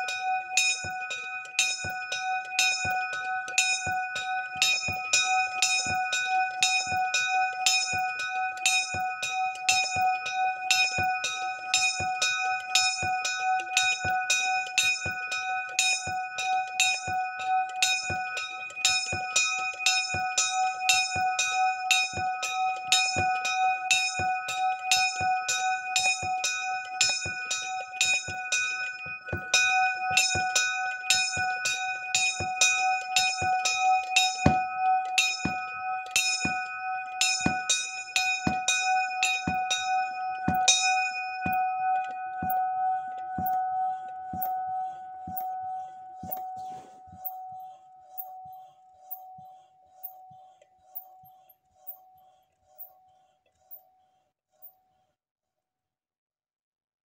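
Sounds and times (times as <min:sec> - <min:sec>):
small bronze bell ringing: 0:00.0 - 0:44.6.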